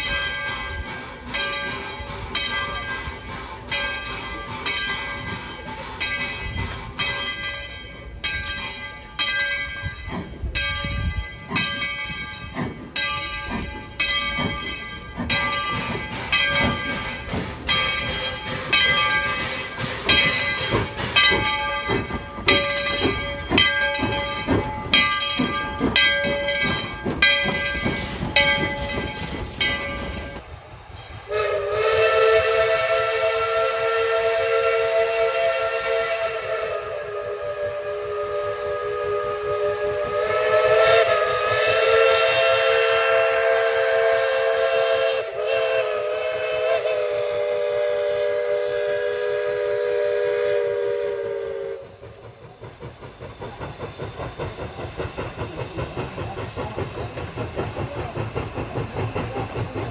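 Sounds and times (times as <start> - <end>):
locomotive bell ringing: 0.0 - 30.4
locomotive running rumble: 0.0 - 59.9.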